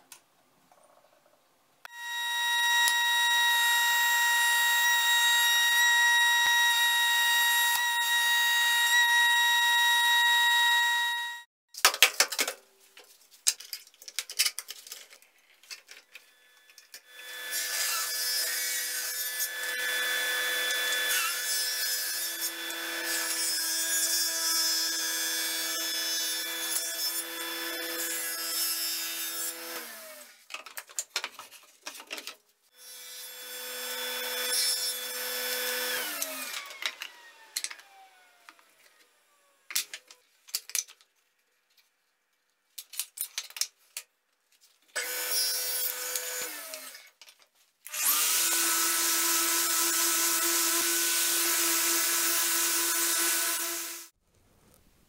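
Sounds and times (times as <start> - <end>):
table saw cutting wood: 1.9 - 11.5, 16.3 - 30.3, 32.8 - 39.6, 45.0 - 47.1, 47.9 - 54.2.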